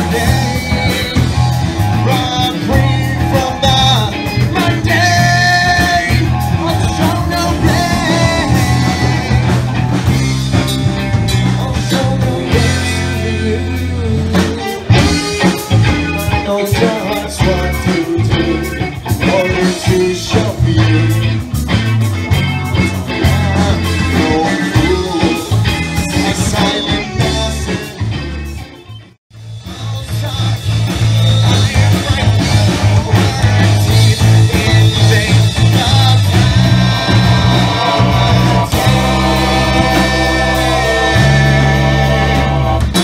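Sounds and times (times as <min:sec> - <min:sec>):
man singing: 0:00.0 - 0:21.6, 0:23.0 - 0:28.6, 0:29.6 - 0:43.0
bass notes: 0:00.0 - 0:43.0
live rock band playing: 0:00.0 - 0:43.0
drum hits: 0:29.8 - 0:43.0.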